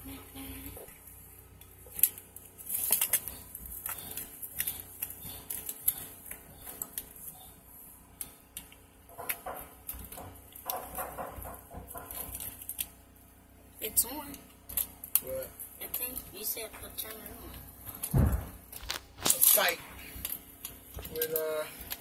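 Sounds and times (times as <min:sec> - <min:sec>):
pipe clicks knocks and scrapes: 0:08.6 - 0:12.9.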